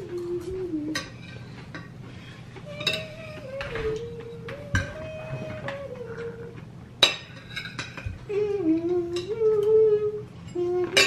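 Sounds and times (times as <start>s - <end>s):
person humming: 0.0s - 1.2s, 2.6s - 6.7s, 8.2s - 11.0s
cutlery clinking on plates: 0.2s - 6.0s, 7.0s - 8.2s, 10.5s - 11.0s.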